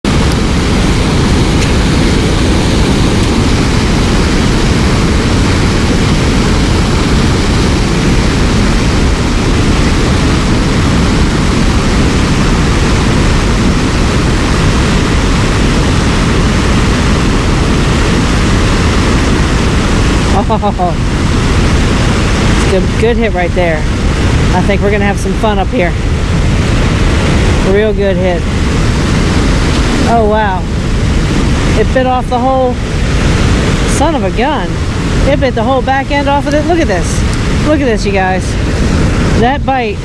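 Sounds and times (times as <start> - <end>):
water rushing over a dam: 0.0 - 40.0.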